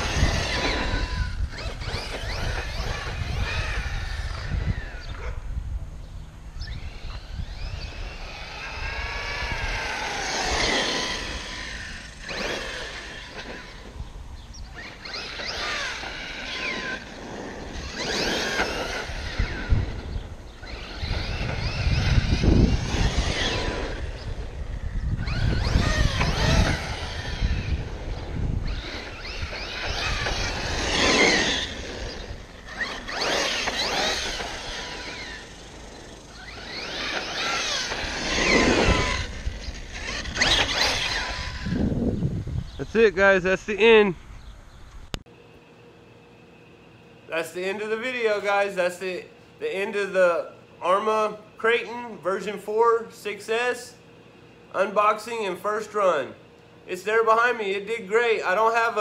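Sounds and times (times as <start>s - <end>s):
electric motor whining: 0.0s - 44.0s.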